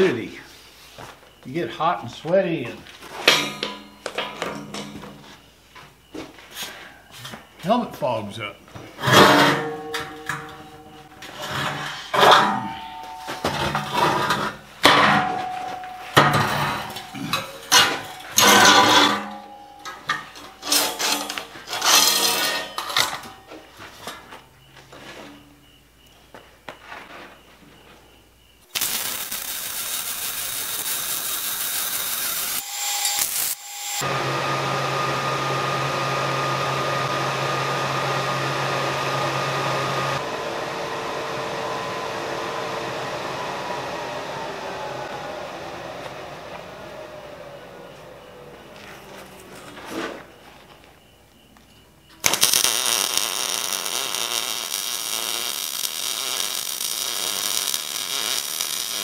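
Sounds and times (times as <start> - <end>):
welding arc hissing: 16.2 - 22.8, 28.7 - 34.1, 52.2 - 59.0
machine running with low hum: 32.2 - 50.8.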